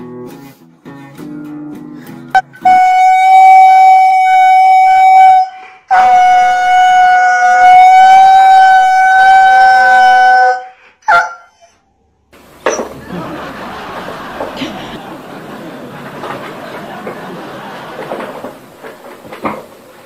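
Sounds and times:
dog howling: 0:05.9 - 0:11.8.

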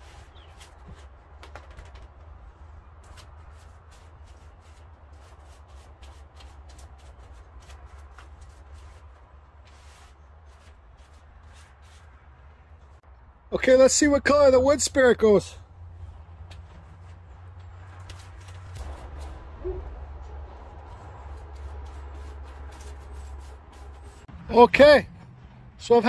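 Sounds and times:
paintbrush scratching on wood: 0:03.0 - 0:12.4, 0:20.7 - 0:24.3
steady low rumble: 0:15.6 - 0:25.9.

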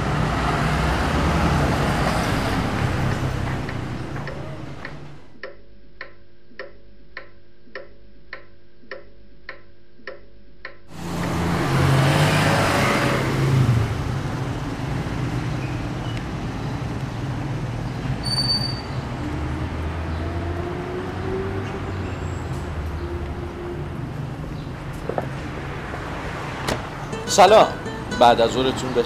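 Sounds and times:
street traffic noise: 0:00.0 - 0:05.4, 0:10.9 - 0:29.0
vehicle passing loudly: 0:00.0 - 0:05.4, 0:10.9 - 0:18.2, 0:18.9 - 0:29.0
clock ticking: 0:02.3 - 0:11.5.

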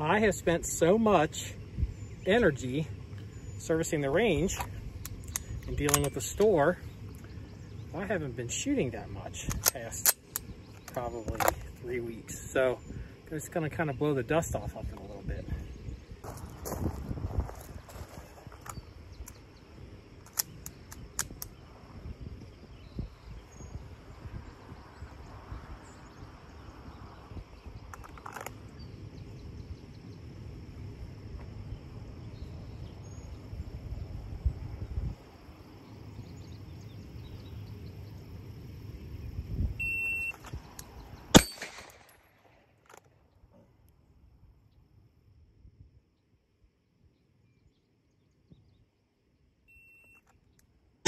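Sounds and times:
pistol handling clicks: 0:04.6 - 0:06.2, 0:09.5 - 0:11.6, 0:20.2 - 0:21.6, 0:40.4 - 0:43.1
shot timer beep: 0:39.8 - 0:40.3
pistol shot: 0:41.3 - 0:42.3.

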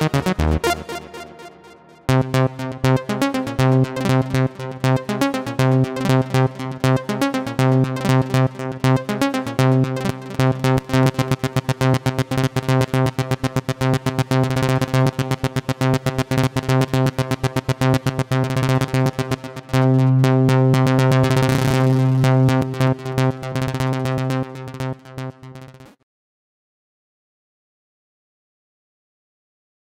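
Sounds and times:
synthesizer arpeggio: 0:00.0 - 0:16.6
held synthesizer chord: 0:00.0 - 0:25.6.

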